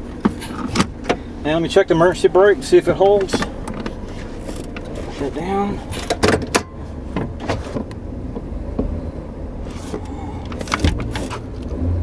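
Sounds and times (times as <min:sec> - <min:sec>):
parking brake pedal clicks and clunks: 0:00.0 - 0:01.3, 0:02.8 - 0:09.0, 0:09.8 - 0:11.8.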